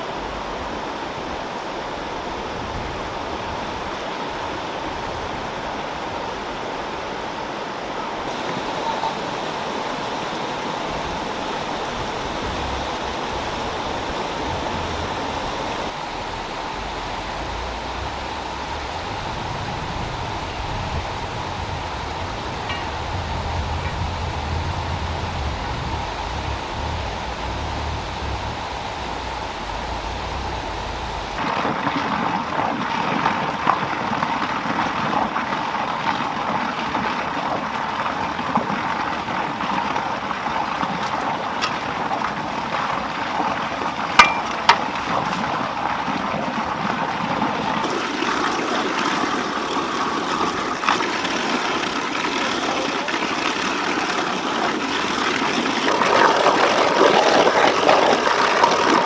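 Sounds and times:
water rushing through channel: 0:00.0 - 0:59.0
sharp knocks: 0:44.2 - 0:44.9.

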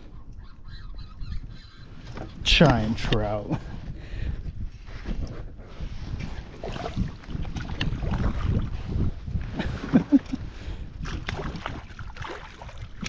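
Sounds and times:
wind on microphone: 0:00.0 - 0:13.0
water splashing: 0:11.1 - 0:13.0.

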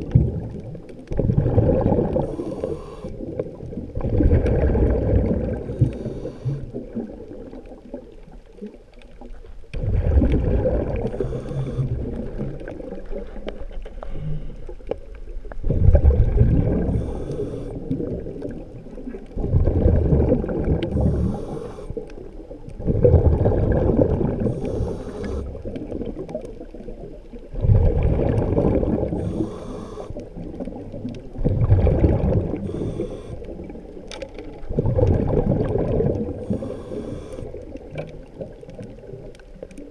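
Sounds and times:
diver's exhaled bubbles gurgling: 0:00.0 - 0:39.9
faint hissing: 0:02.0 - 0:03.8, 0:05.2 - 0:07.0, 0:10.6 - 0:14.7, 0:16.5 - 0:19.1, 0:20.8 - 0:22.5, 0:24.0 - 0:25.9, 0:28.7 - 0:31.1, 0:32.3 - 0:34.0, 0:35.8 - 0:37.9.

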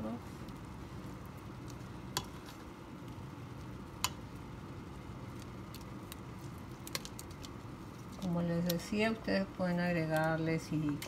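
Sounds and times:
meat simmering in a pot: 0:00.0 - 0:11.0
tongs clicking against metal pot: 0:04.0 - 0:04.2.

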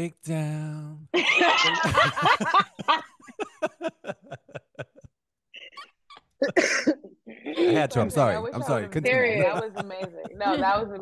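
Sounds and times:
people laughing: 0:01.2 - 0:05.1, 0:07.5 - 0:11.0.

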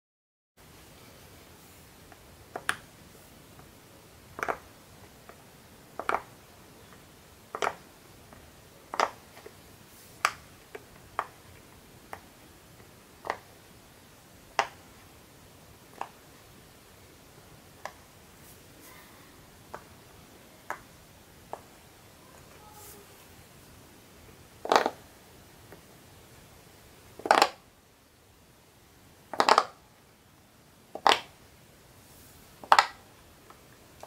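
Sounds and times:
fidget toy bubbles popping: 0:29.3 - 0:29.8, 0:30.9 - 0:31.3.

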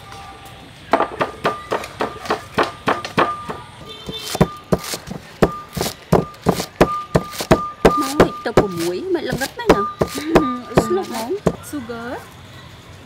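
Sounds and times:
pestle pounding in mortar: 0:01.0 - 0:11.7
knife chopping on wooden board: 0:04.1 - 0:11.6.

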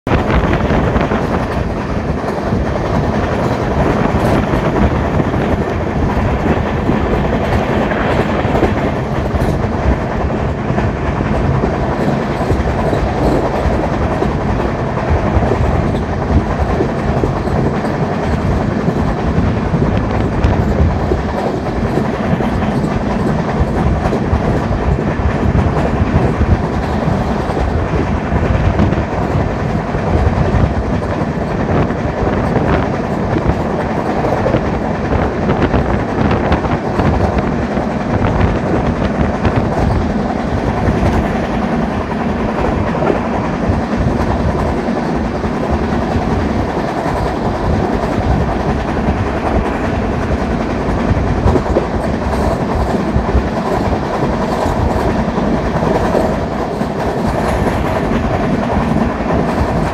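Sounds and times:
train wheels rolling on rail: 0:00.0 - 0:59.9.

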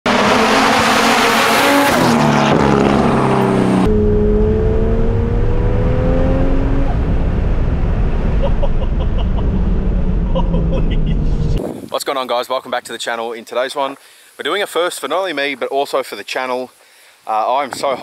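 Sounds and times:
turbocharged engine accelerating: 0:00.1 - 0:11.6.

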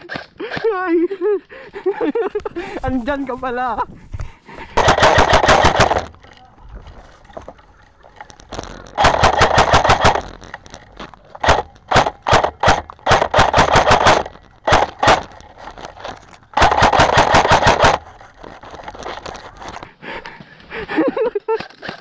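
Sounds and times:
airsoft rifle full-auto bursts: 0:04.8 - 0:06.1, 0:09.0 - 0:10.3, 0:11.4 - 0:15.4, 0:16.6 - 0:18.1.

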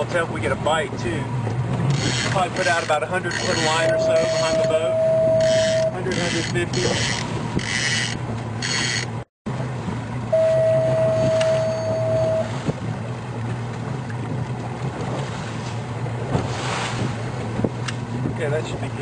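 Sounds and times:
boat motor humming: 0:00.0 - 0:19.0
steady tone: 0:03.5 - 0:06.0, 0:10.3 - 0:12.6.

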